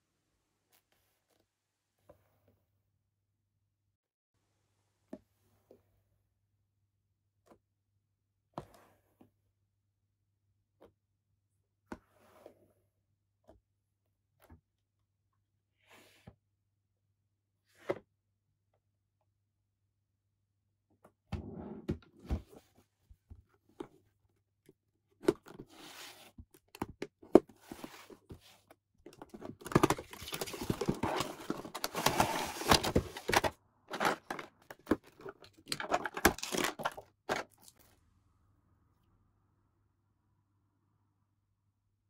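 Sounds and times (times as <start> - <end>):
cardboard box handled and opened: 25.2 - 37.6
plastic packaging crinkling: 29.5 - 37.8.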